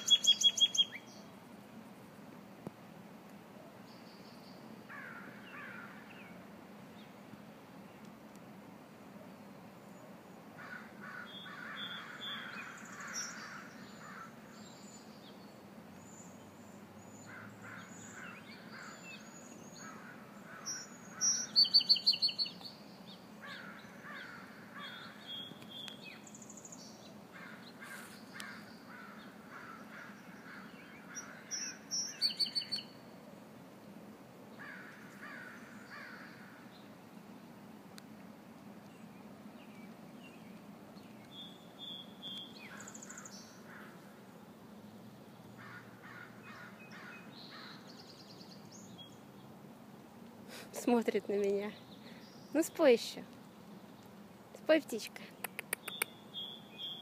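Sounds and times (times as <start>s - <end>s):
songbird singing high notes: 0.0s - 1.2s, 20.7s - 22.8s, 31.5s - 33.0s
faint birds chirping: 0.0s - 1.4s, 3.7s - 8.4s, 9.1s - 57.0s.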